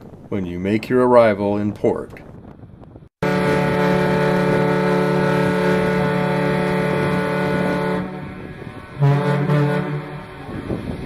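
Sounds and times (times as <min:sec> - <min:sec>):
ship whistle blast: 0:03.2 - 0:11.0.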